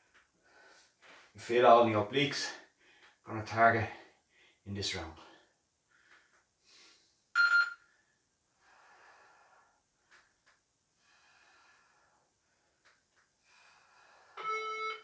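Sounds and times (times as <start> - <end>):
faint breathing: 5.2 - 10.4, 11.0 - 14.4
electronic timer chime: 14.4 - 15.0.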